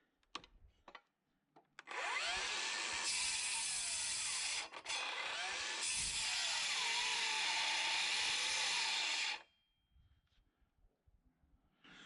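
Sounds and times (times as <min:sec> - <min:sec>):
circular saw cutting wood: 0:01.9 - 0:09.4.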